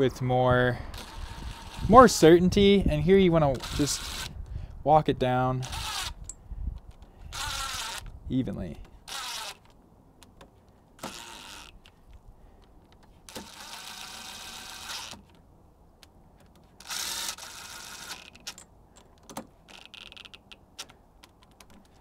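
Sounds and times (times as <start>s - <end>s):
impact driver motor whine: 0.9s - 2.0s, 7.2s - 8.1s, 9.0s - 9.7s, 11.0s - 11.8s, 16.8s - 18.5s.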